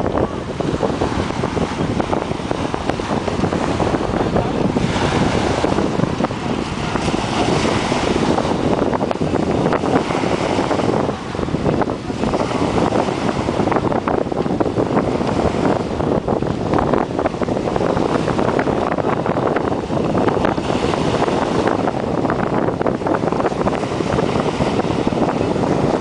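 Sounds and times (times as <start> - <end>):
waves washing on pebble beach: 0.0 - 26.0
wind buffeting microphone: 0.0 - 26.0.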